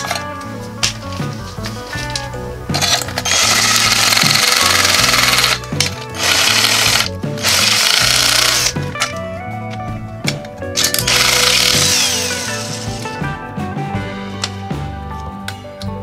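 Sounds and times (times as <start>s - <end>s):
cordless drill cutting into metal: 2.8s - 8.8s, 10.8s - 13.0s.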